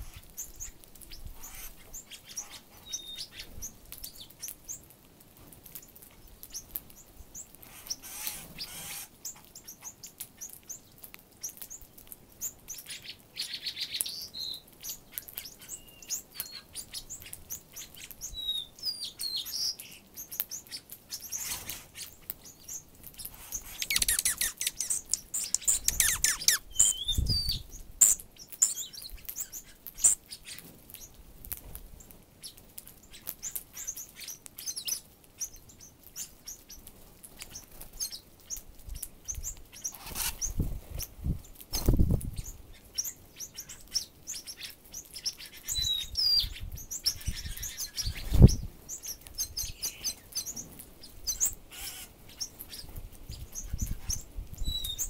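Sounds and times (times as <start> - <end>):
small birds chirping: 0.0 - 55.0
beaks pecking through seed: 19.8 - 27.2.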